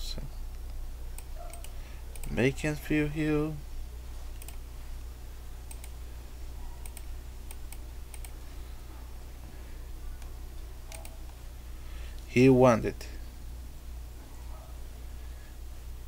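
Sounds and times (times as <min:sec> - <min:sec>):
low electrical hum: 0:00.0 - 0:16.0
mouse clicks: 0:04.4 - 0:04.6, 0:05.7 - 0:06.0, 0:06.8 - 0:08.4, 0:10.9 - 0:11.4
computer keyboard typing: 0:05.7 - 0:06.0, 0:06.8 - 0:08.4, 0:10.9 - 0:11.4.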